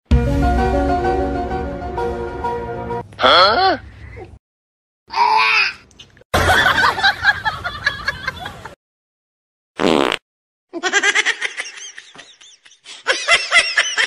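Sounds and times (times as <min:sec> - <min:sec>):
person giggling and laughing: 0:10.7 - 0:14.0.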